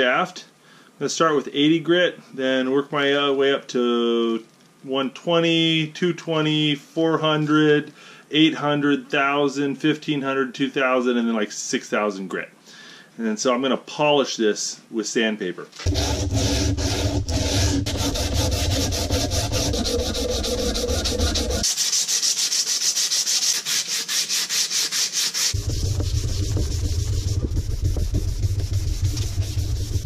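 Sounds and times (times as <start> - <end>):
sandpaper rasping on wood: 15.8 - 30.0.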